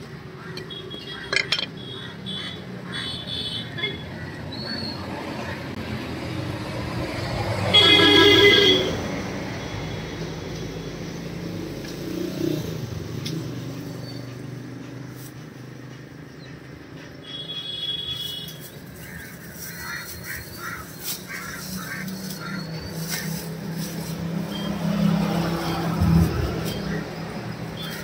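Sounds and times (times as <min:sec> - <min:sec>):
background traffic: 0:00.0 - 0:28.0
plastic bag rustling: 0:18.5 - 0:24.6.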